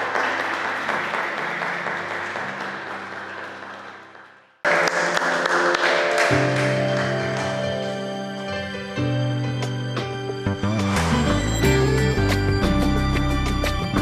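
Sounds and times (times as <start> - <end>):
people applauding: 0.0 - 8.3
instrumental music: 4.7 - 14.0.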